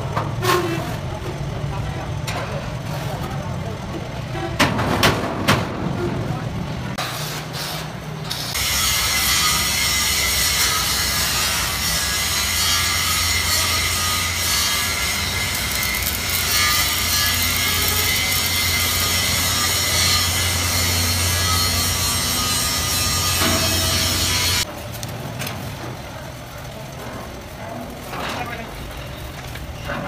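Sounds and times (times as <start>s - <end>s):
arc welding crackling hiss: 8.4s - 24.7s.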